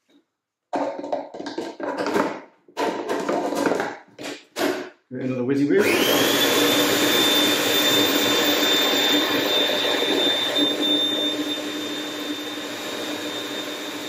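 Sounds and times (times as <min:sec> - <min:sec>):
food processor motor whirring: 0:05.8 - 0:14.0.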